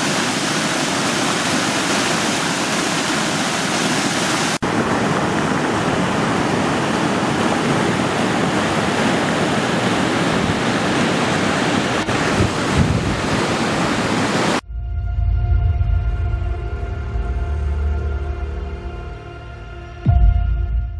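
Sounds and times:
floodwater cascading: 0.0s - 14.6s
wind buffeting microphone: 4.6s - 14.6s.

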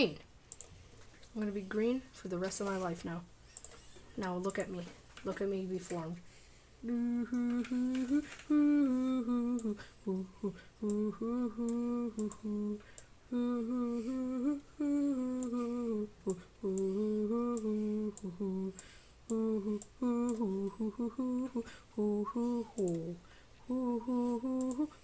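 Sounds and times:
person humming a tune: 6.8s - 25.0s.

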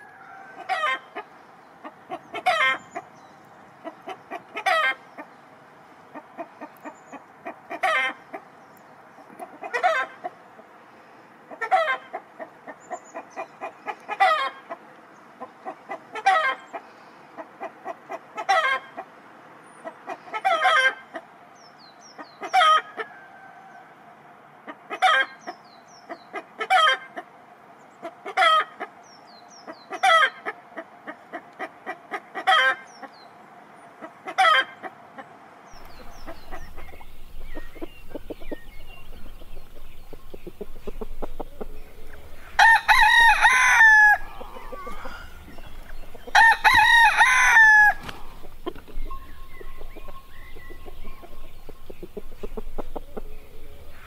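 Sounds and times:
chicken cackling and squawking: 0.0s - 3.2s, 3.8s - 5.4s, 6.1s - 8.5s, 9.3s - 10.4s, 11.5s - 19.2s, 19.8s - 21.3s, 22.2s - 23.8s, 24.6s - 27.4s, 28.0s - 29.0s, 29.7s - 33.2s, 34.0s - 54.0s
small birds chirping: 35.7s - 54.0s.

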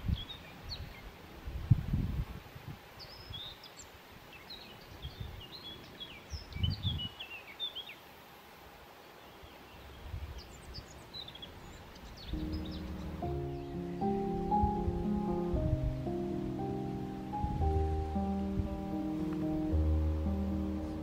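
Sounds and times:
small birds chirping: 0.0s - 1.3s, 2.9s - 8.2s, 9.0s - 21.0s
outdoor background noise: 0.0s - 21.0s
low rumbles: 12.4s - 21.0s.

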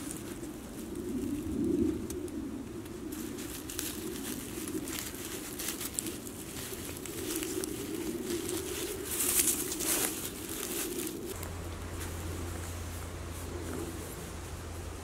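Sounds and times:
pigeon cooing: 0.0s - 11.4s
tent fabric rustling: 3.1s - 15.0s.

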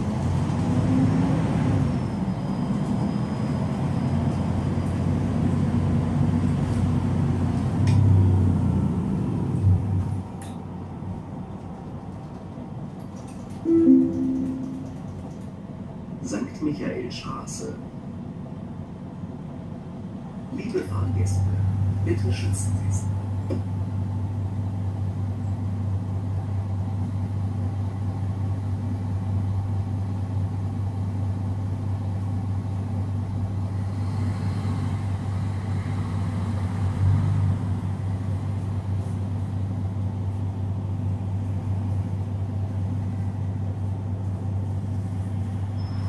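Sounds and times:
diesel bus engine idling: 15.0s - 46.0s.

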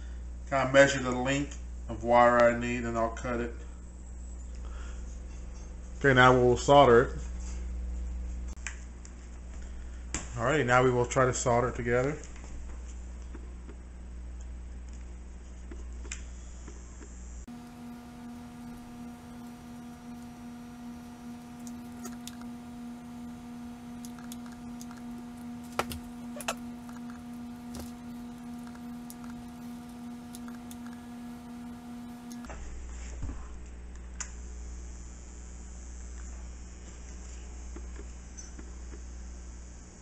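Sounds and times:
soldering gun buzzing: 16.1s - 32.6s.

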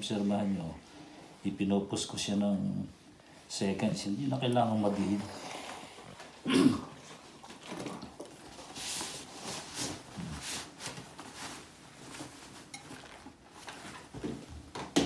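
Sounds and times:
fabric rustling and swishing: 8.3s - 14.7s.

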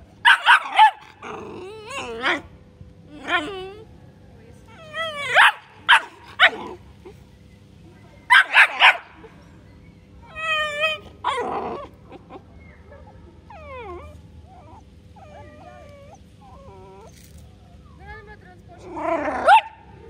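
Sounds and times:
puppy barking: 0.2s - 1.2s, 5.0s - 6.8s, 8.3s - 9.2s, 19.4s - 19.9s
puppy yelping and whining: 0.3s - 2.5s, 3.1s - 3.8s, 4.8s - 7.2s, 10.2s - 17.2s.

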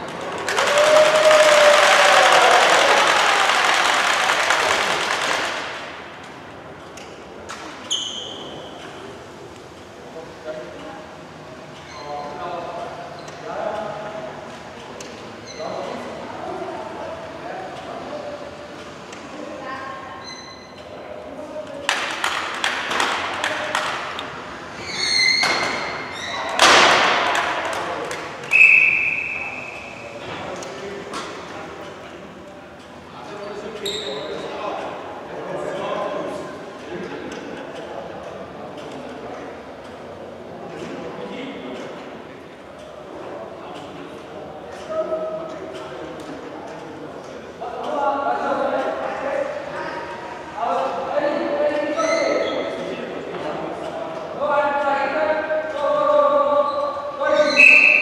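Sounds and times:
crowd noise in sports hall: 0.0s - 58.0s
referee's whistle blast: 28.5s - 30.0s, 57.4s - 58.0s
wavering high squeal: 56.6s - 58.0s.

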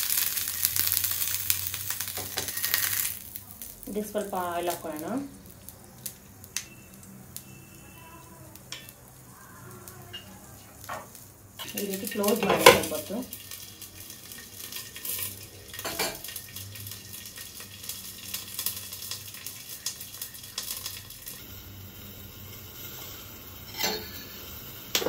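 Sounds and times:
vegetables sizzling in oil: 0.0s - 25.0s.

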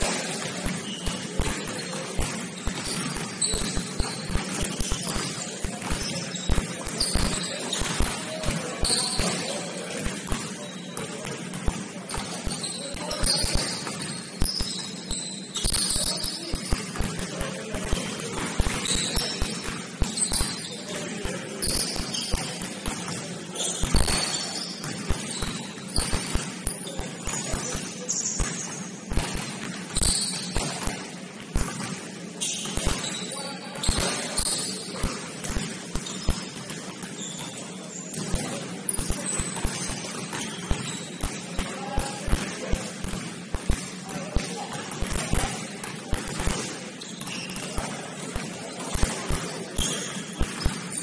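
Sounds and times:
basketball bouncing on gym floor: 0.0s - 51.0s
sneakers squeaking: 0.0s - 51.0s.

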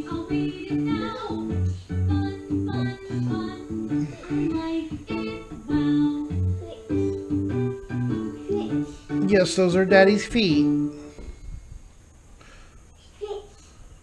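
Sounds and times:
person singing: 0.0s - 7.1s.

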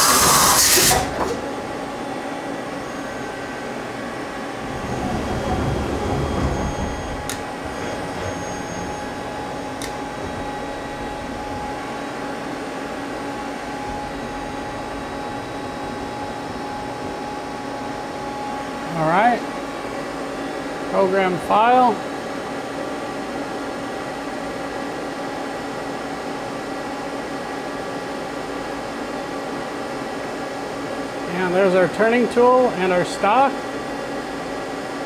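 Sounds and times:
lathe humming: 0.0s - 21.0s
faint whining tones: 1.4s - 19.0s
low rumble: 4.4s - 12.5s.

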